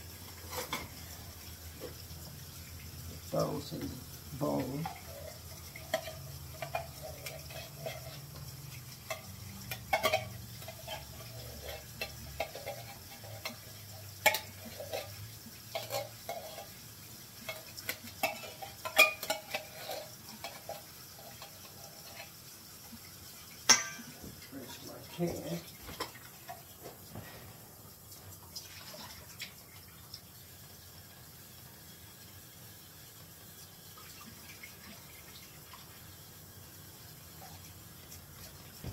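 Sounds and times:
spoon stirring and scraping bowl: 0.2 - 1.0, 4.8 - 16.8, 17.4 - 22.4
spoon clinking against dish: 23.7 - 24.1.

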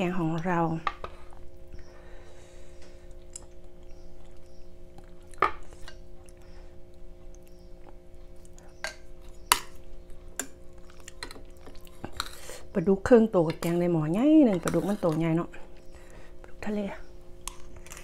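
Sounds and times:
chewing and mouth sounds: 2.9 - 12.5.

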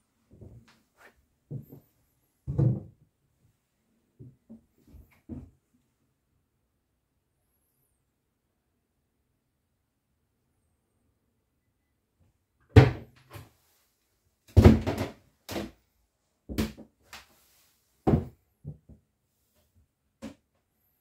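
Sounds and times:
irregular knocks and thumps: 2.5 - 3.0.

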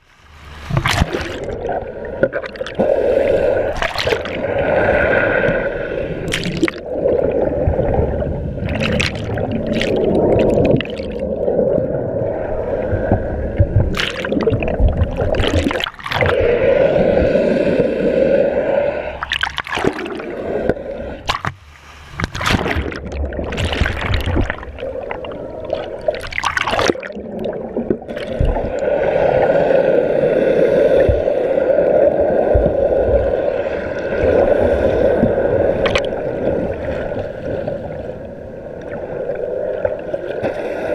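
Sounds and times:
water sloshing and gurgling: 0.0 - 40.9
water splashing over camera: 0.7 - 3.0, 3.6 - 5.6, 6.2 - 17.3, 19.2 - 29.5, 32.1 - 38.0.

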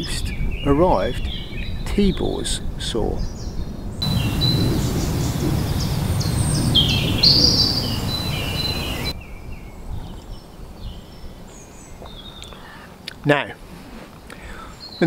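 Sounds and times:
birds chirping and singing: 3.2 - 9.2
steady rushing noise: 4.0 - 9.1.

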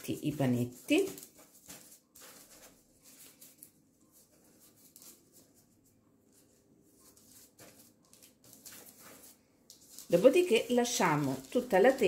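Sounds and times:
rustling of baking parchment and dough: 0.0 - 12.0.

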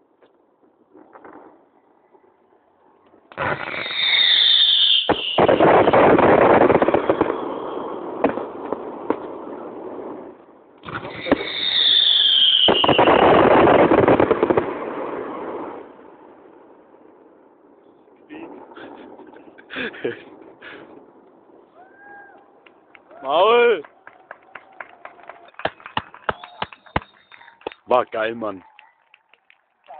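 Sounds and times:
fireworks hissing and crackling: 3.2 - 16.0, 18.2 - 23.2, 25.5 - 28.0
firework bangs: 3.2 - 17.1, 18.5 - 27.8
firework whistle falling: 3.3 - 6.0, 10.8 - 13.8, 26.2 - 27.6.

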